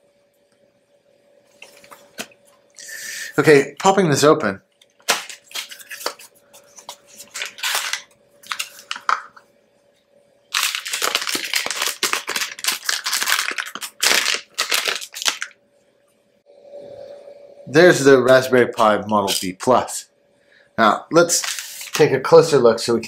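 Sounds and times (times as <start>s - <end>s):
plastic bag crinkling: 5.0s - 9.4s, 10.5s - 15.6s, 21.3s - 22.0s.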